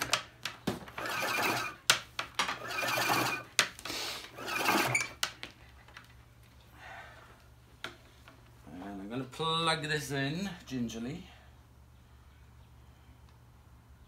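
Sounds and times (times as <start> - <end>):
power cord reel whirring: 0.9 - 1.8, 2.4 - 3.5, 4.2 - 5.2.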